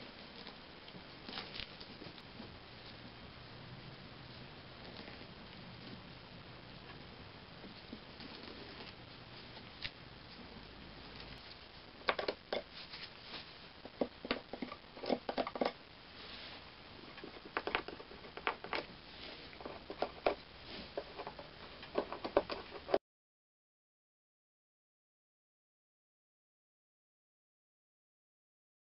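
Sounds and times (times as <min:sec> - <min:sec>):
faint steady hiss: 0:00.0 - 0:23.0.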